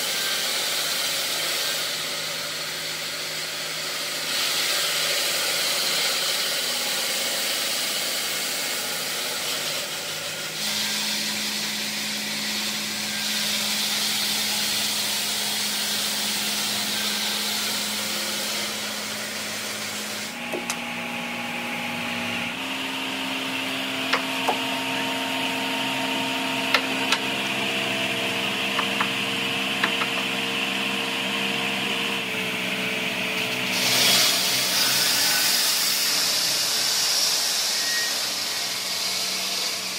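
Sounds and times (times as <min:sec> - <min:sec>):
stone saw grinding hiss: 0:00.0 - 0:20.4, 0:33.6 - 0:39.9
machine hum: 0:10.5 - 0:33.4.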